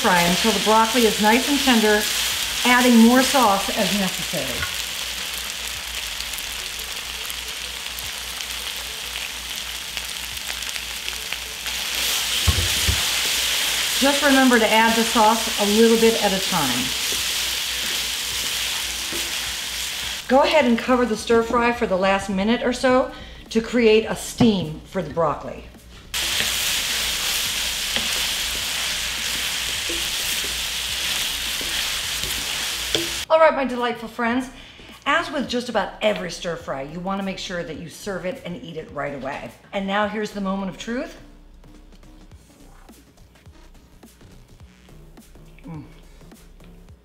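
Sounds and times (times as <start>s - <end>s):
food sizzling in a wok: 0.0s - 20.8s, 26.1s - 33.3s.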